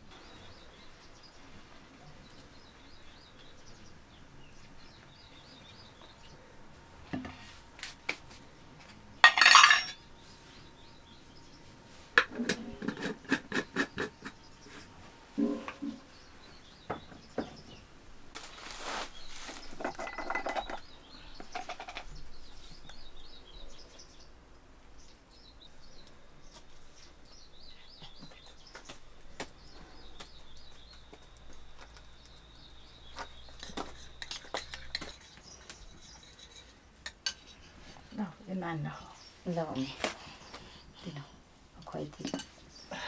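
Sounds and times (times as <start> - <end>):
birds chirping: 0.0 - 7.4, 9.0 - 43.0
spoon clinking on glass jars: 9.2 - 10.0.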